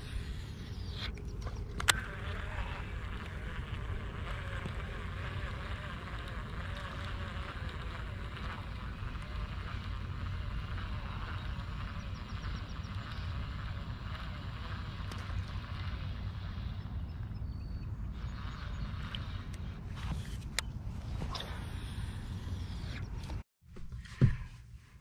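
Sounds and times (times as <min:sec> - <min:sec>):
fishing reel whirring: 0:00.0 - 0:23.4
wind rumble on microphone: 0:00.0 - 0:23.4.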